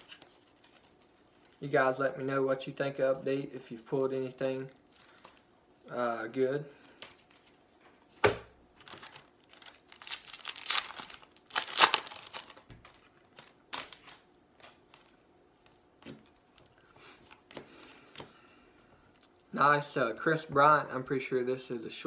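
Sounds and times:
cards rustling: 0.0 - 1.8, 8.8 - 19.4
plastic wrapper crinkling and tearing: 8.8 - 15.2.

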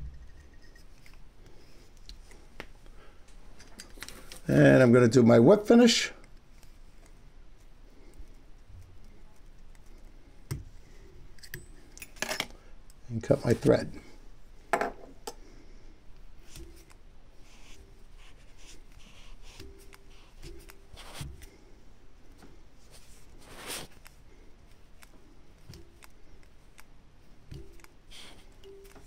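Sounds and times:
scrape: 22.8 - 24.0.

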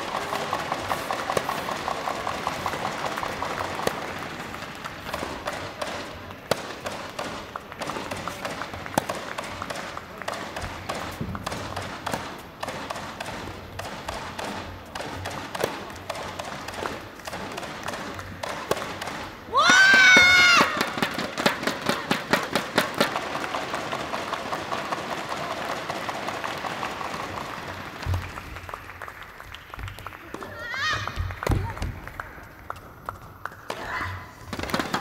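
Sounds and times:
racket striking ball: 0.0 - 26.5
ball bouncing: 0.0 - 28.9, 29.5 - 35.0.

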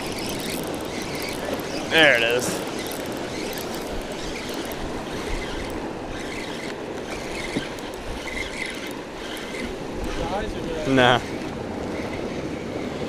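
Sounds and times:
surf washing against rocks: 0.0 - 13.0
wind rumble on microphone: 0.0 - 13.0.

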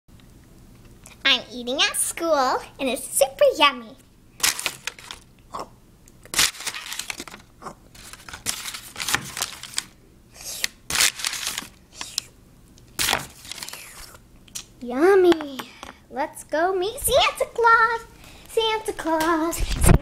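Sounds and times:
paper tearing and crumpling: 4.4 - 5.2, 6.3 - 12.3, 13.0 - 14.2.

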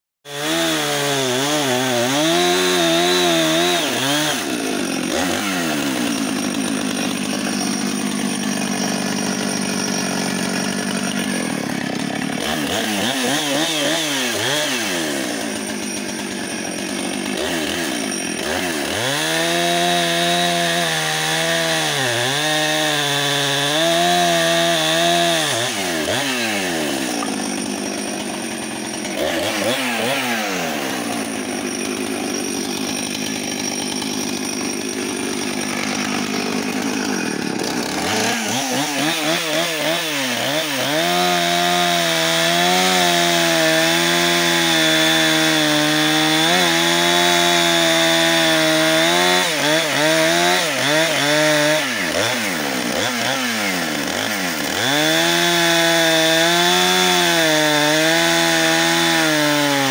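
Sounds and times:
chainsaw cutting wood: 0.2 - 59.9.

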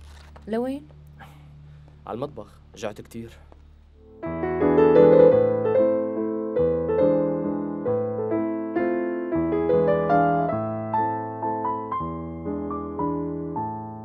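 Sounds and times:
slow piano melody: 4.0 - 14.0.

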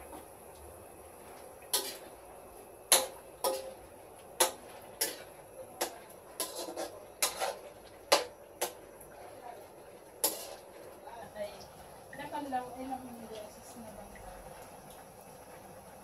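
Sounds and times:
dishes and utensils clinking: 1.7 - 2.1, 2.9 - 3.8, 4.4 - 8.8, 10.2 - 10.7.

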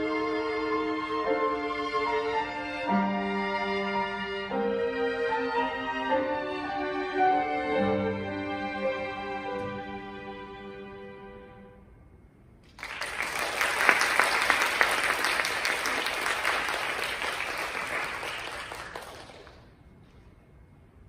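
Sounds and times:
string ensemble chord: 0.0 - 12.2
audience applauding: 12.7 - 19.8.

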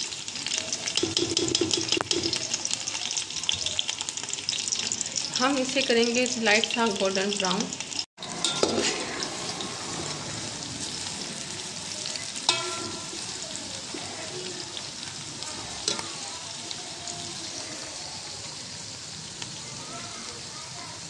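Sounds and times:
onions sizzling in oil: 0.0 - 21.0
metal spoon clinking against pot: 1.0 - 2.4, 8.2 - 9.1, 12.5 - 13.2.

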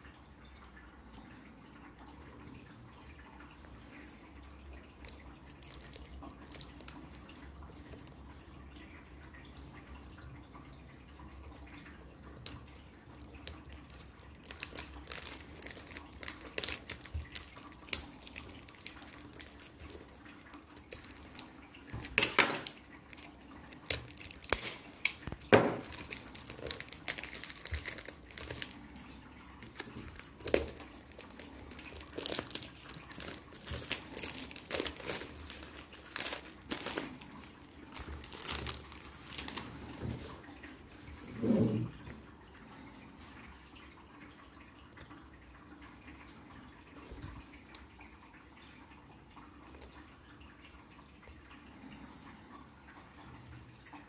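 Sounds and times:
plastic wrap crinkling: 5.0 - 7.2, 13.2 - 29.0, 29.6 - 40.4
plastic wrap ripping: 13.4 - 28.8, 29.7 - 39.8.

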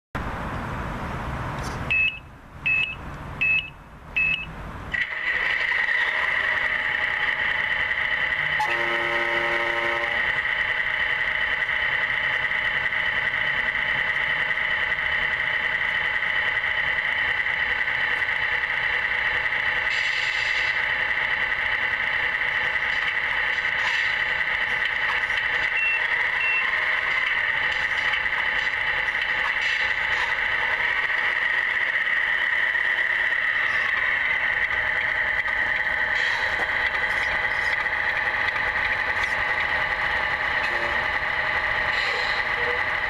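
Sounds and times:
electronic engine hum: 1.8 - 43.0
short electronic beeps: 1.9 - 4.6
horn sounding: 8.6 - 10.3.

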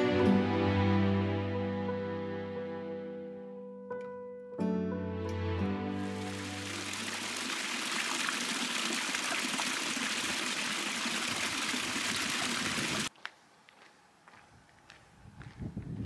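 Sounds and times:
music: 0.0 - 7.0
stream splashing over rocks: 6.0 - 13.1
water running into plastic bottle: 6.2 - 13.1.

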